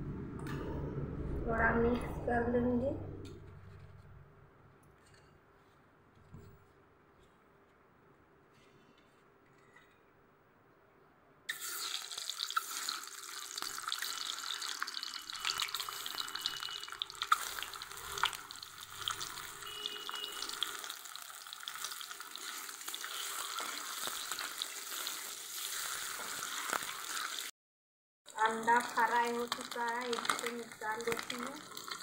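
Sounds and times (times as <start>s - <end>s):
eggs sizzling in hot oil: 11.5s - 27.5s, 28.3s - 32.0s.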